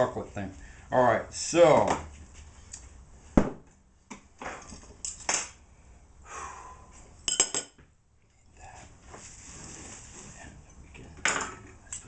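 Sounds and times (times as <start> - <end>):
kitchenware clinking: 7.3 - 7.8.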